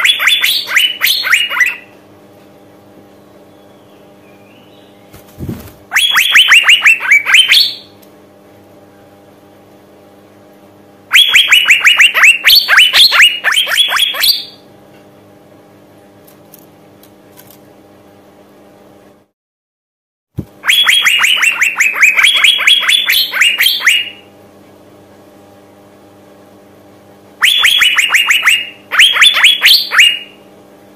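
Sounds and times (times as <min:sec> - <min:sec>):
bird whistling falling notes: 0:05.4 - 0:07.8.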